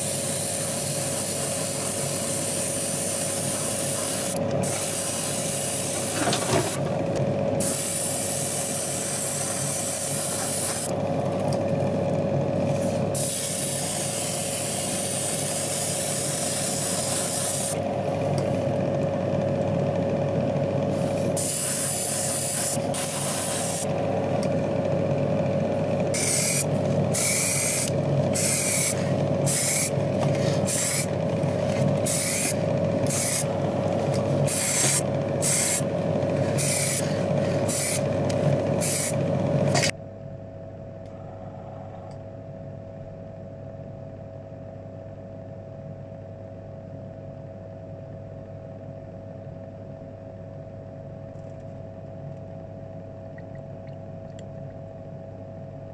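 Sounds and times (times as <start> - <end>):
airbrush spraying paint: 0.0 - 6.8, 7.6 - 10.9, 12.7 - 18.2, 20.9 - 23.9, 26.1 - 39.9
motor hum: 0.0 - 44.5.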